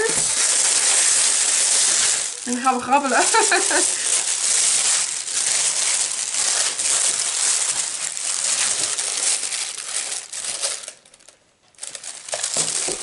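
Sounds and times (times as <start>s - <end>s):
tissue paper rustling and crinkling: 0.0s - 13.0s.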